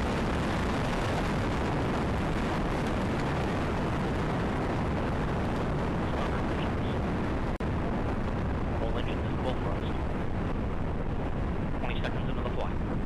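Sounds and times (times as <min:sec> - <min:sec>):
rocket engines roaring: 0:00.0 - 0:13.0.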